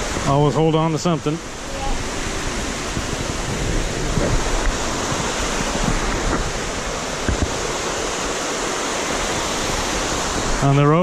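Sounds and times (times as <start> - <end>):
waterfall rushing: 0.0 - 11.0
wind buffeting microphone: 0.0 - 11.0.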